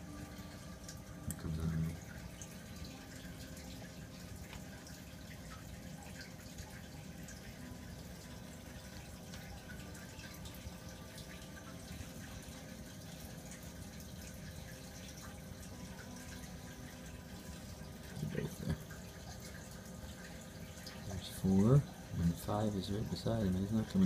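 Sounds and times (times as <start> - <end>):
aquarium water trickling and splashing: 0.0 - 24.0
faint steady hum: 0.0 - 24.0.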